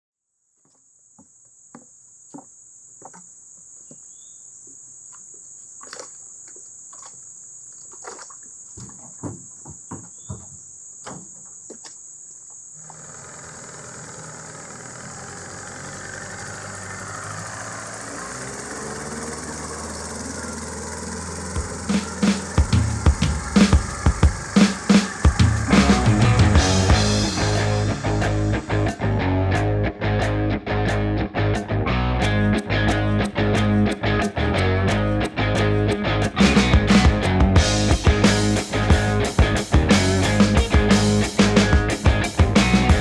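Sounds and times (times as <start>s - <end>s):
insects droning: 0.3s - 43.0s
outboard motor running: 12.8s - 29.4s, 35.7s - 43.0s.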